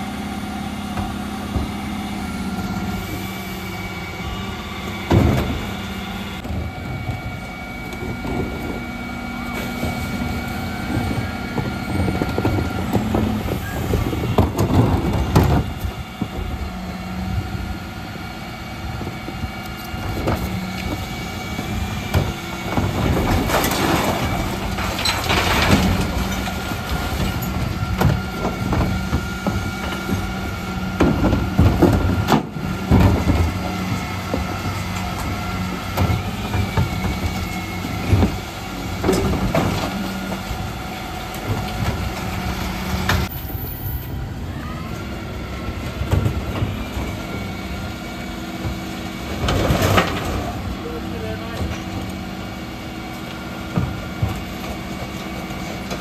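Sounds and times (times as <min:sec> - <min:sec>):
truck machinery whining: 0:00.0 - 0:56.0
recycling clattering into hopper: 0:09.5 - 0:16.6, 0:20.0 - 0:43.3, 0:44.9 - 0:56.0.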